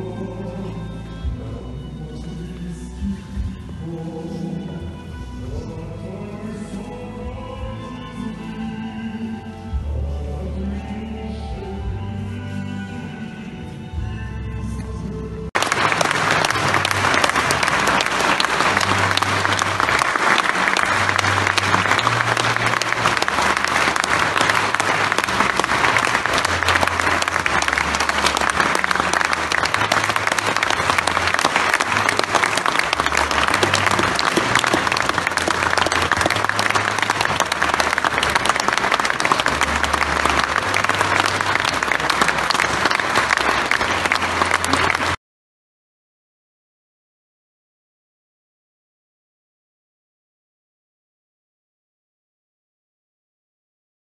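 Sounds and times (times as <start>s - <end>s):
large crowd applauding: 15.6s - 45.2s.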